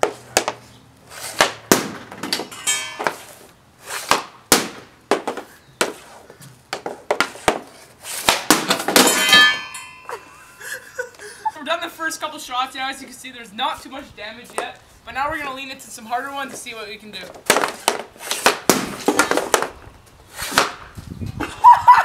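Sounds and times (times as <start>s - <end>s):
hockey stick slaps: 0.0s - 0.6s, 1.2s - 9.7s, 17.4s - 19.8s, 20.4s - 20.9s
puck impacts: 0.0s - 10.2s, 14.4s - 14.8s, 16.4s - 21.6s
metallic ringing hits: 2.5s - 3.2s, 9.0s - 10.6s.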